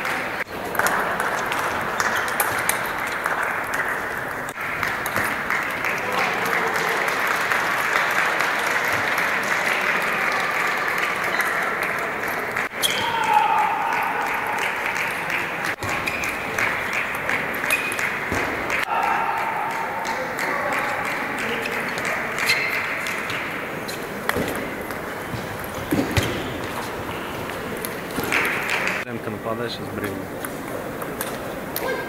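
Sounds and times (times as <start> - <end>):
spectators applauding: 0.0 - 23.4.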